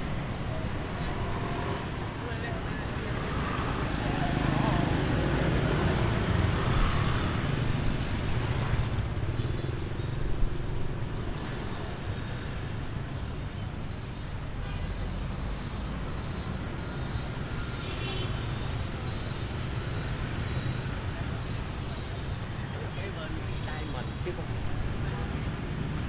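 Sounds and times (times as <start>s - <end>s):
scooters and cars passing: 0.0s - 26.0s.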